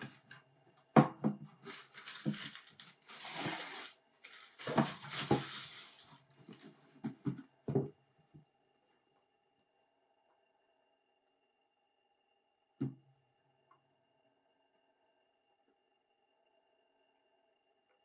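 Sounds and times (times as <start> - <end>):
tissue paper rustling: 1.5 - 6.9.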